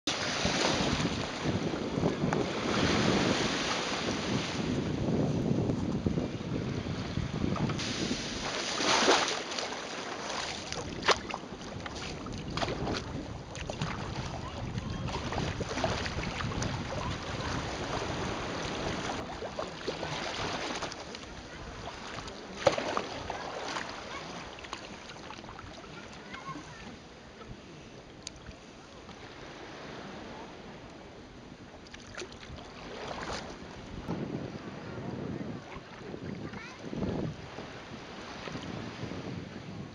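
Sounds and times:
wind buffeting microphone: 0.1s - 9.2s, 10.4s - 22.3s, 32.3s - 39.9s
water splashing around kayak: 0.1s - 39.9s.

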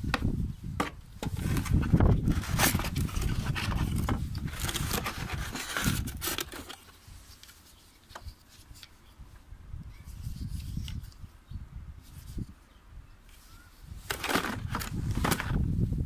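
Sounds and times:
cardboard scraping and rustling: 0.8s - 8.7s, 13.4s - 15.8s
plastic battery packs clicking: 14.1s - 15.6s.

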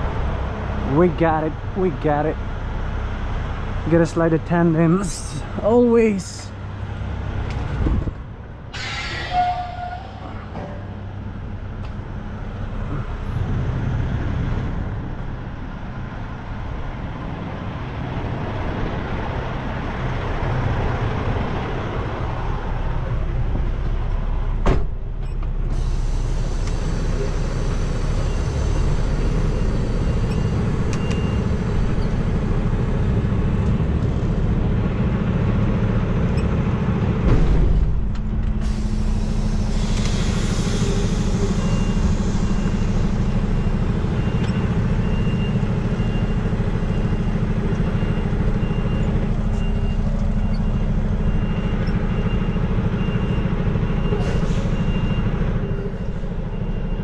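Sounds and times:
truck diesel engine idling: 21.4s - 37.2s, 38.4s - 57.0s.

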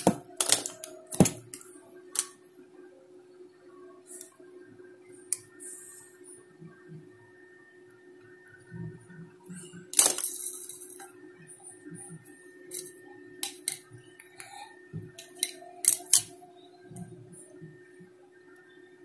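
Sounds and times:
cutters clicking: 0.0s - 1.6s
wire cutters snipping: 0.0s - 1.6s, 15.2s - 16.3s
faint steady hum: 0.0s - 19.0s.

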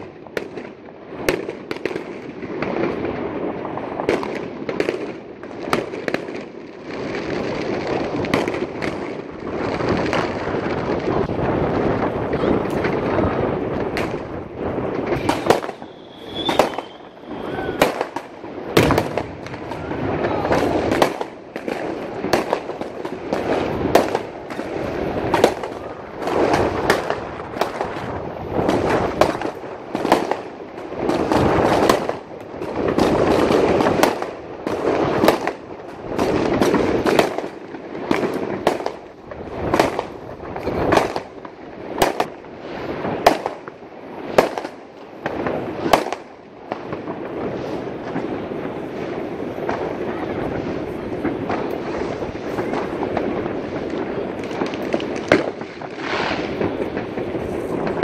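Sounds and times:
fireworks banging: 0.0s - 58.0s
continuous rumble: 7.3s - 16.0s.

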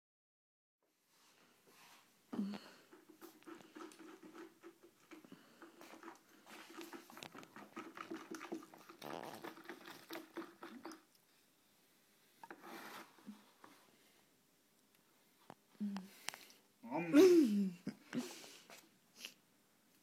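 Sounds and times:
stick stirring liquid in plastic bucket: 2.4s - 11.2s.

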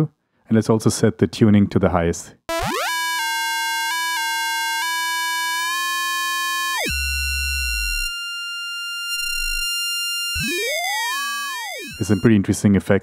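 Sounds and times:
bright high synth tones: 2.5s - 12.3s.

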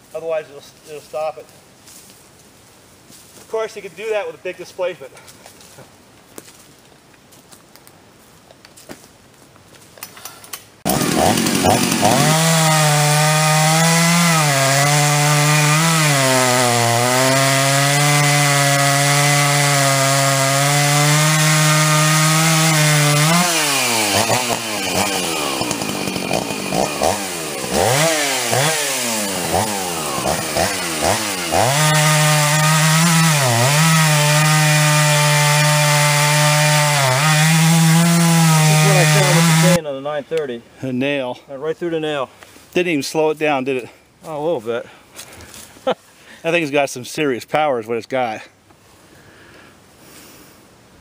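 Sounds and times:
chainsaw cutting a log: 10.8s - 39.8s.

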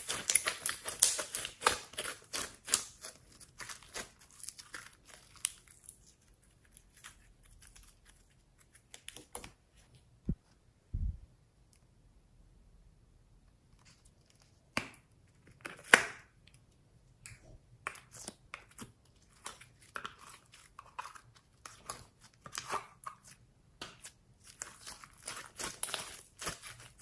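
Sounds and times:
slime clicking and crackling: 0.0s - 9.5s, 17.2s - 27.0s.

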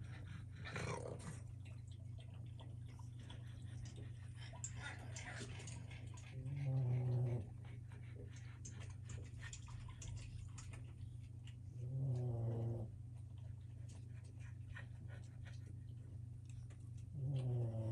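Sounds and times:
puppy growling: 0.0s - 1.5s, 3.9s - 8.3s, 11.7s - 13.0s, 16.4s - 17.9s
steady low hum: 0.0s - 17.9s.

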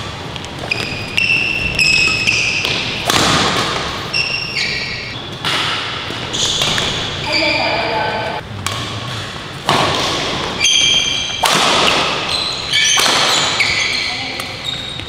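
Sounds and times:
shoes squeaking on court floor: 0.2s - 8.4s, 10.4s - 15.0s
racket hitting shuttlecock: 0.6s - 4.5s, 5.3s - 7.3s, 8.6s - 14.6s.

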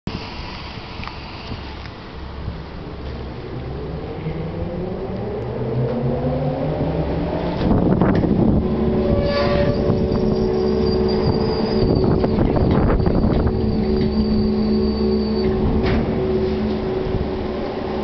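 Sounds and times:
ferry engine running: 0.1s - 18.0s
loud rumbling clatter: 7.4s - 18.0s
thin high whine: 9.2s - 17.2s.

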